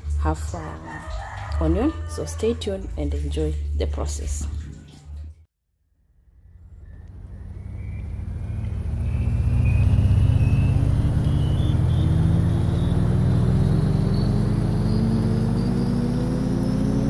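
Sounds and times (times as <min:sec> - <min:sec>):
vehicle engine rising in pitch: 0:06.0 - 0:17.0.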